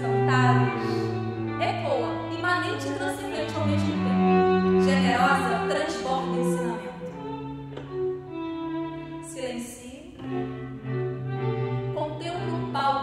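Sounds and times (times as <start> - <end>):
low cello note: 0.0 - 9.5
string quartet playing slow notes: 0.0 - 13.0.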